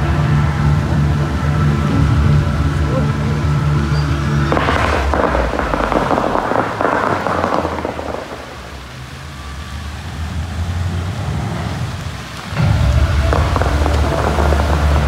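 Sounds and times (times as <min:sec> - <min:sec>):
low bass music: 0:00.0 - 0:11.8, 0:12.5 - 0:15.0
water jets rushing hiss: 0:04.5 - 0:15.0.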